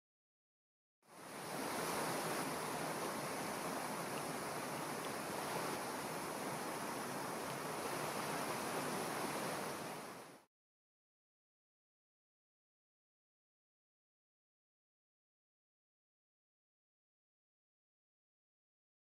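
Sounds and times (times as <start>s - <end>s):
water cascading over rocks: 1.2s - 10.5s.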